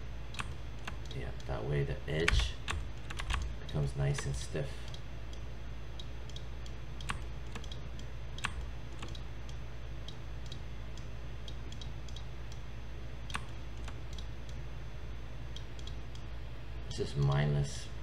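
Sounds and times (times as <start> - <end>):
steady low hum: 0.0 - 18.0
keyboard clicks: 2.2 - 4.3, 6.3 - 9.2, 13.3 - 14.3.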